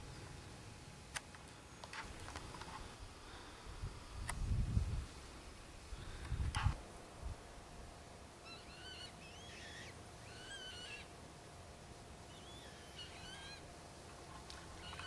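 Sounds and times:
distant bird calls: 8.3 - 11.3, 12.1 - 15.0.

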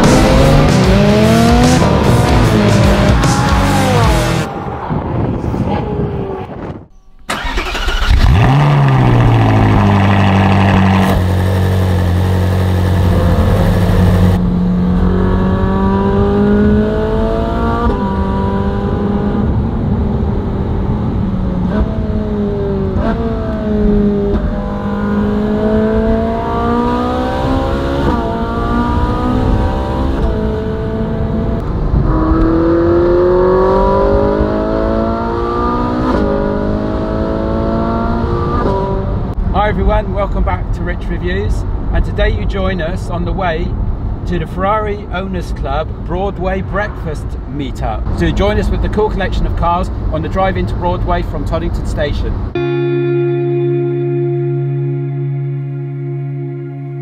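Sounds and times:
car engine accelerating through gears: 0.0 - 39.5
car engine starting and idling: 6.9 - 15.4.

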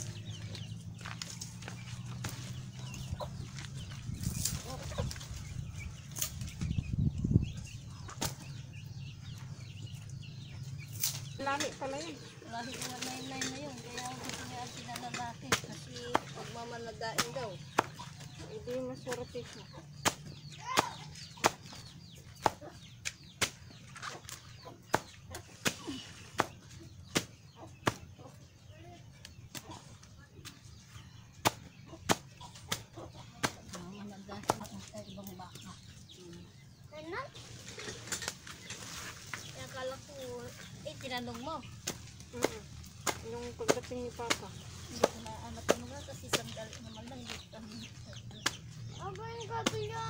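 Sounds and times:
chickens clucking: 0.0 - 50.0
blade chopping stalks: 20.0 - 21.8, 41.8 - 47.4.

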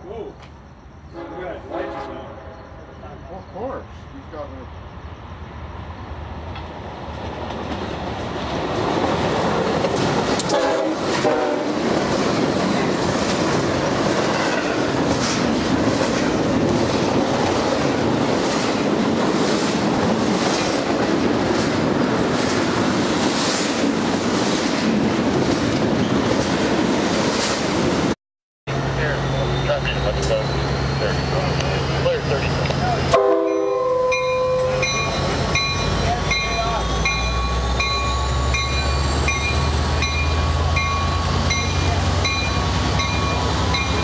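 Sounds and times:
freight train rumbling past: 0.0 - 44.0
train horn note: 1.1 - 3.0, 10.4 - 11.8, 33.1 - 35.1
train wheels clickety-clack: 6.5 - 28.0.

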